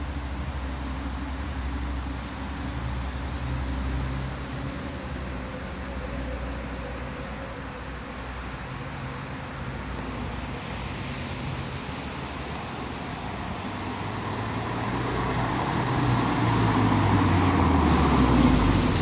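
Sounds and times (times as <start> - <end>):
tyres on brick paving: 14.2 - 19.0.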